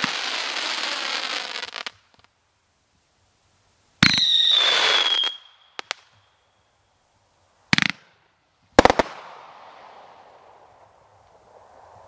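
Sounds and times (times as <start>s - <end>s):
firework crackle: 0.0s - 2.4s, 8.8s - 12.0s
falling firework whistle: 4.0s - 6.7s.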